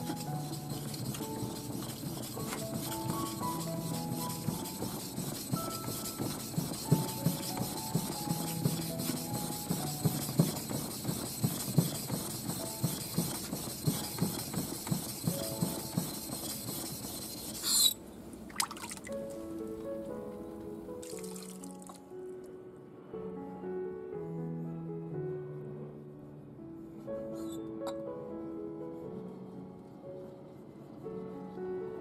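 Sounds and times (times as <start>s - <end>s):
blade sharpening on whetstone: 16.8s - 18.0s.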